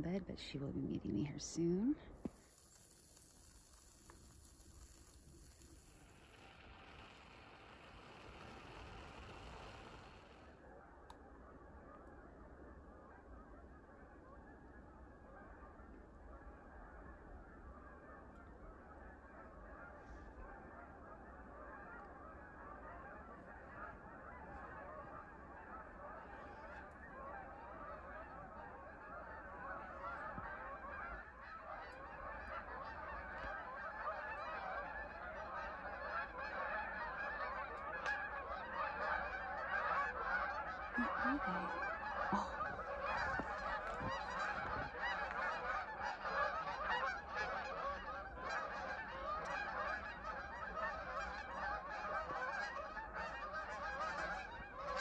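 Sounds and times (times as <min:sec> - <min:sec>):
geese honking: 0:01.2 - 0:12.3, 0:12.9 - 0:55.0.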